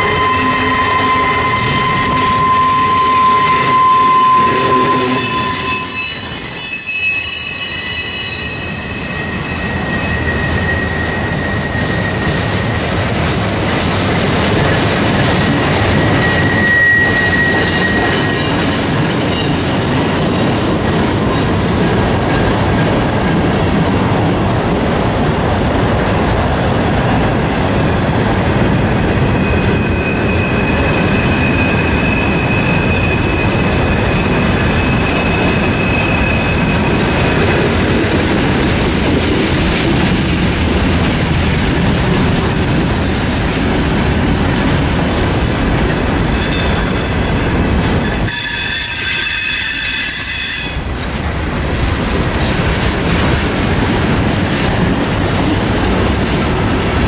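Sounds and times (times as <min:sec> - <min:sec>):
wheel squeal: 0:00.0 - 0:13.2, 0:15.3 - 0:19.8, 0:29.1 - 0:37.9, 0:45.6 - 0:51.0
train wheels rumbling on rails: 0:00.0 - 0:57.0.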